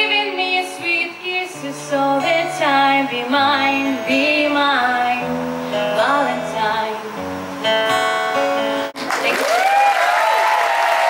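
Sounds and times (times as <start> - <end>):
woman singing: 0.0 - 7.2
strummed acoustic guitar: 0.0 - 9.0
audience applause: 9.0 - 11.0.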